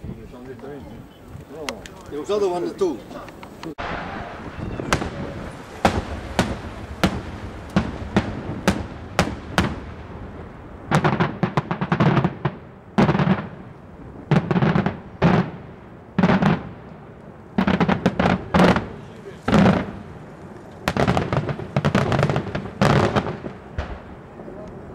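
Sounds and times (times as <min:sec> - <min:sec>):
rapid crackling reports: 0:00.0 - 0:12.3, 0:17.3 - 0:24.9
fireworks shells exploding: 0:00.4 - 0:24.9.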